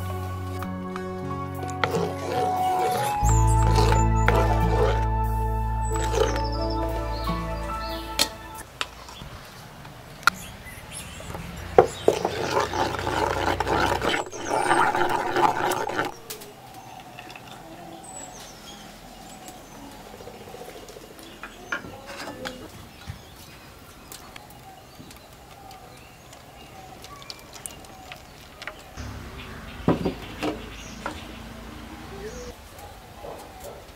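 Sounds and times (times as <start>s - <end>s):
spoon stirring thick batter: 1.0s - 5.1s.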